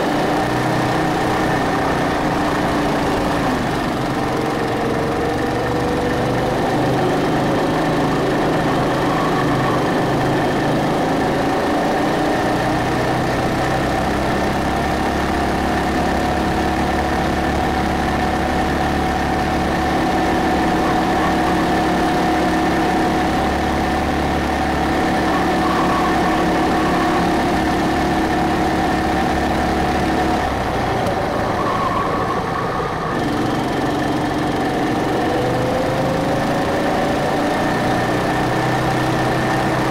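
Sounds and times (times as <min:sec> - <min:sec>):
go-kart engine revving: 0:00.0 - 0:39.9.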